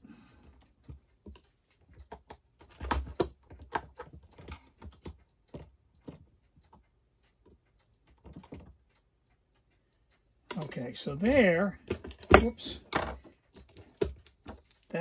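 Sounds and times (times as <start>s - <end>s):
small metal parts clicking: 10.5s - 14.8s.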